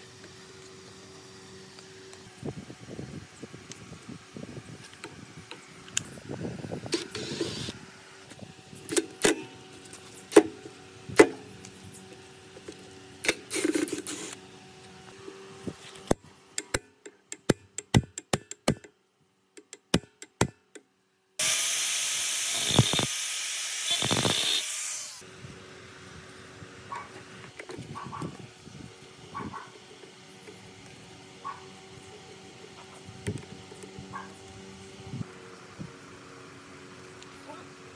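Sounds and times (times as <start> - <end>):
angle grinder cutting steel: 21.4 - 25.2.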